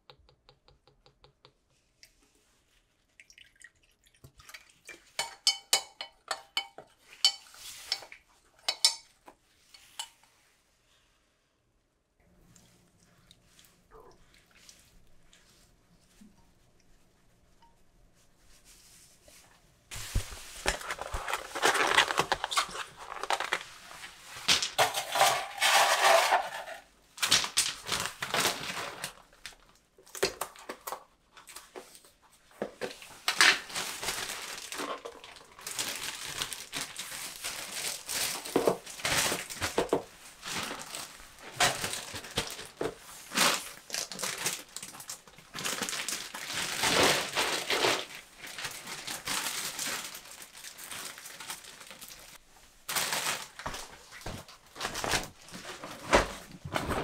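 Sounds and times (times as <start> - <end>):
plastic container handled: 19.9 - 26.8
plastic bag crinkling: 20.4 - 23.8, 33.4 - 57.0.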